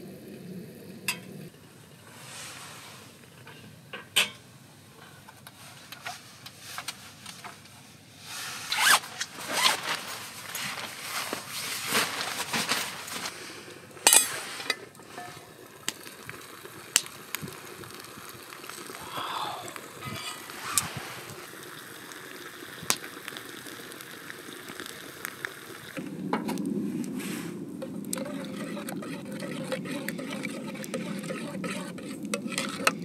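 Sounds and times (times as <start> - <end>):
scrape: 2.1 - 3.1, 8.2 - 13.4, 14.1 - 15.4, 20.2 - 21.2, 27.2 - 27.6, 28.2 - 33.0
fabric rustling: 8.3 - 13.4
zip being worked: 8.7 - 9.9.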